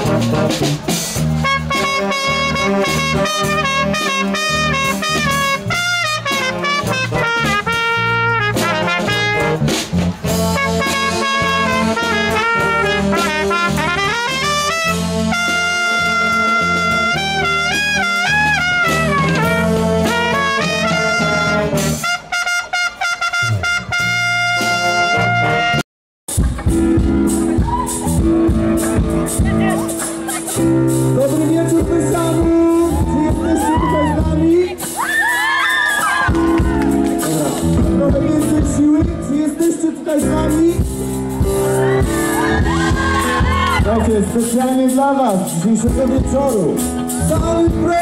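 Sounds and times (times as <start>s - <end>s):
trumpet solo: 0.0s - 25.8s
jazz big band: 0.0s - 48.0s.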